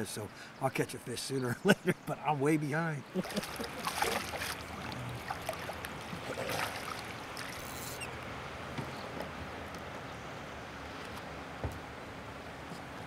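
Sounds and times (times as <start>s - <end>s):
fish thrashing and splashing: 3.2s - 8.0s.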